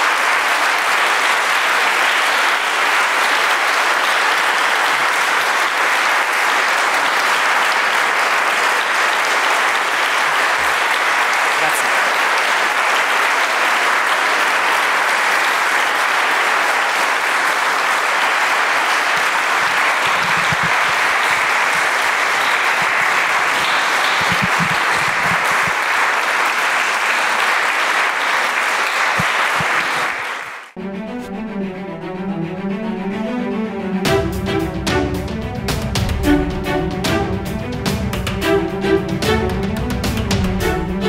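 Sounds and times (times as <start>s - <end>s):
audience applauding: 0.0s - 30.8s
bowed string music: 30.8s - 41.0s.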